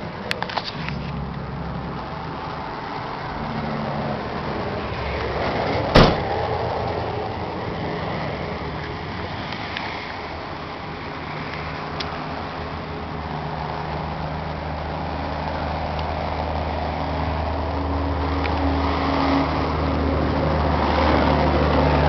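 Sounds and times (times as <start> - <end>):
cab door shutting bang: 5.9 - 6.4.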